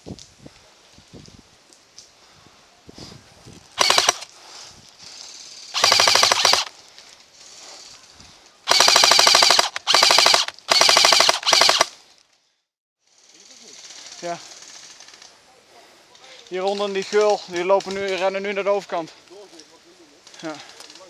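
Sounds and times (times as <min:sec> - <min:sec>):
airsoft rifle full-auto bursts: 0:03.8 - 0:04.3, 0:05.7 - 0:06.7, 0:08.7 - 0:12.0.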